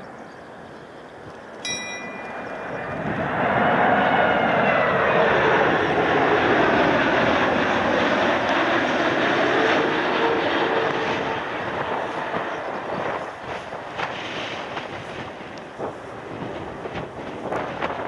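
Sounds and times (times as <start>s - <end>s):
jet engine whine: 0.0s - 18.0s
jet engines roaring overhead: 0.0s - 18.0s.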